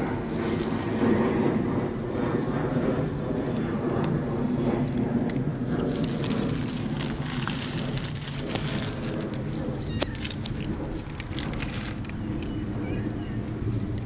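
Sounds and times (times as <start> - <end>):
steady rushing noise: 0.0 - 14.0
scattered small clicks: 3.0 - 14.0.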